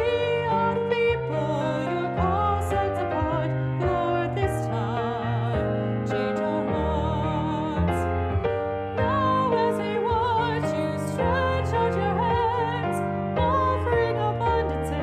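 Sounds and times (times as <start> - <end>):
sustained keyboard accompaniment: 0.0 - 15.0.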